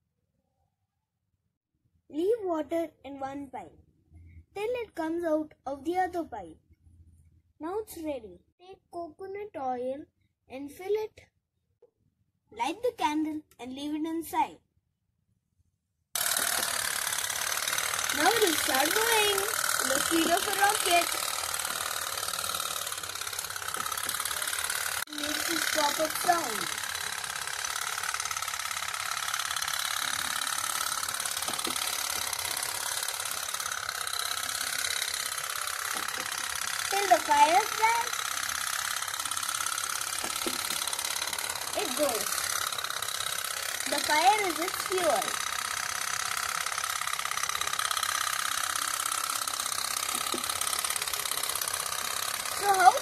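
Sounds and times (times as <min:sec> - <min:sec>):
toy steam boat popping: 0:16.2 - 0:53.0.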